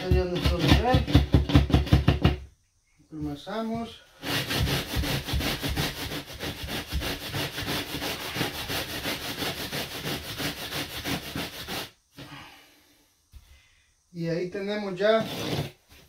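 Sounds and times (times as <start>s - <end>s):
level scraping wet mortar: 15.2s - 15.8s.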